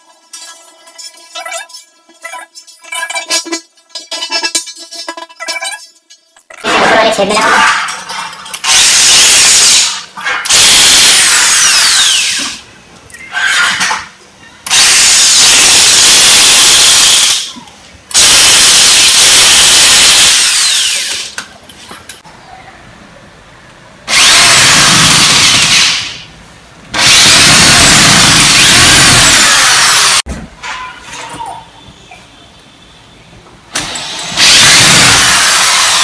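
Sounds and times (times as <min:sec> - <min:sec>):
electric drill driving screws: 0:08.6 - 0:12.6, 0:14.7 - 0:17.5, 0:18.1 - 0:21.4, 0:24.1 - 0:26.2, 0:27.0 - 0:30.2, 0:33.7 - 0:36.0.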